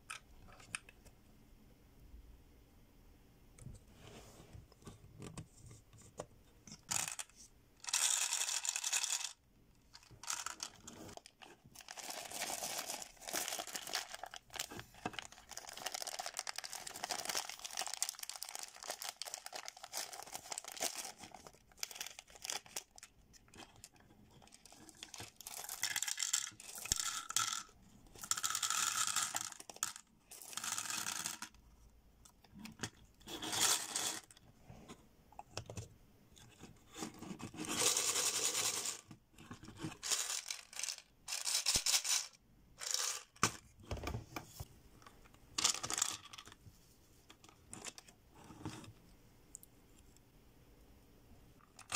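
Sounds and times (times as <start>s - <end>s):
candies rattling into plastic globe: 6.8s - 31.6s, 37.6s - 39.1s, 40.0s - 43.6s, 45.6s - 46.6s
plastic wrapper crinkling and tearing: 11.1s - 23.1s.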